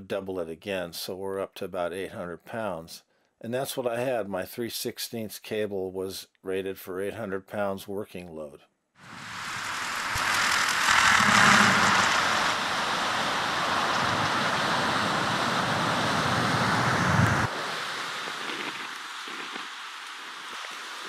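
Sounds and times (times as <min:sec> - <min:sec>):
gusty wind on microphone: 0:09.0 - 0:21.0.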